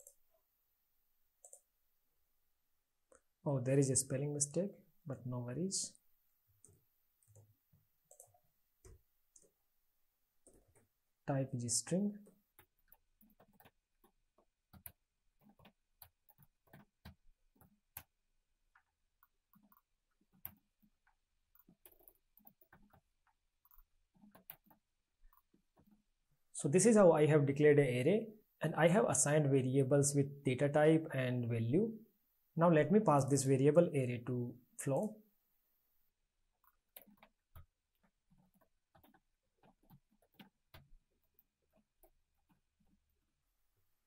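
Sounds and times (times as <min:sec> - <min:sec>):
typing on computer keyboard: 0:01.4 - 0:01.7, 0:08.1 - 0:09.5, 0:10.4 - 0:10.9, 0:12.2 - 0:26.0, 0:36.6 - 0:43.2.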